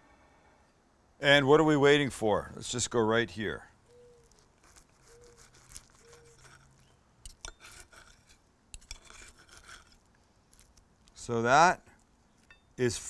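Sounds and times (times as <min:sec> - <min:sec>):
cutlery cutting crunchy food: 0:04.1 - 0:10.8.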